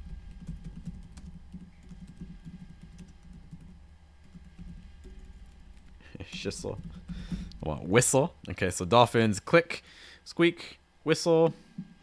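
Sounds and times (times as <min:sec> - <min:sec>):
typing on computer keyboard: 0:00.3 - 0:05.7.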